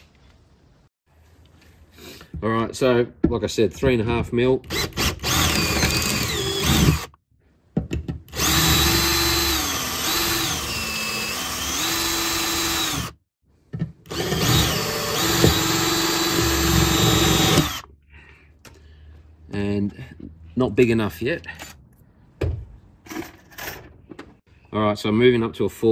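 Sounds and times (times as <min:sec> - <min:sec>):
cordless drill whining: 0:04.7 - 0:07.1, 0:08.3 - 0:13.2, 0:14.1 - 0:17.9.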